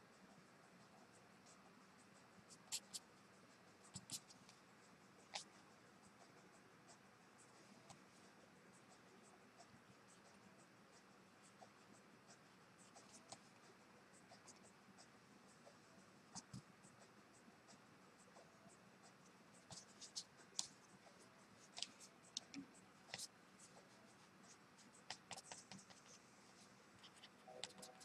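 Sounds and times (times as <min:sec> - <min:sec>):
brush pen scratching on paper: 0:02.4 - 0:03.1, 0:03.8 - 0:04.4, 0:11.0 - 0:28.0.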